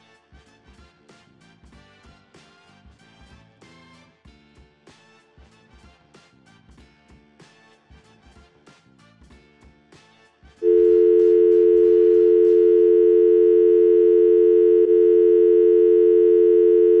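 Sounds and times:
quiet background music with beat: 0.0 - 10.6
telephone dial tone: 10.6 - 17.0.

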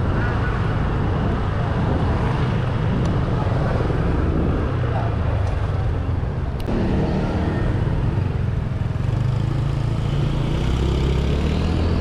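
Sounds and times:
road noise: 0.0 - 12.0
scooter engine rumbling: 6.6 - 9.4.

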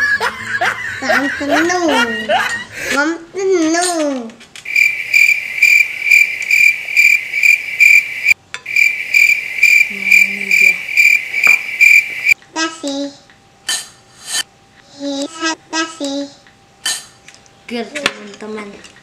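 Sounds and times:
cricket chirping: 4.7 - 12.4.

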